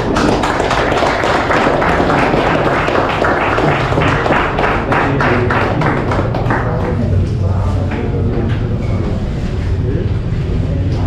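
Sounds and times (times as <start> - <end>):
people clapping: 0.0 - 8.1.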